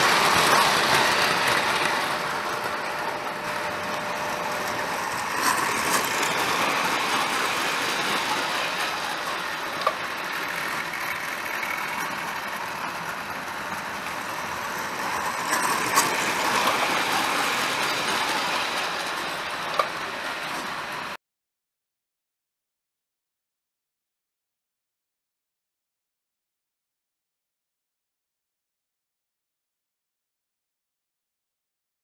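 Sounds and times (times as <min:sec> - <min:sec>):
toy train whirring rumble: 0:00.0 - 0:21.2
wheels clicking over track: 0:00.0 - 0:21.2.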